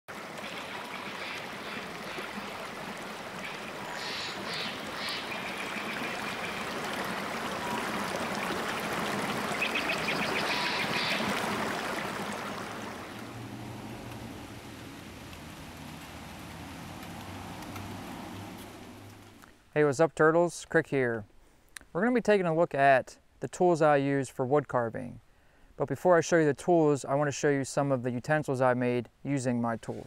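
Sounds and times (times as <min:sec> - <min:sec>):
stream rushing over rocks: 0:00.1 - 0:19.4.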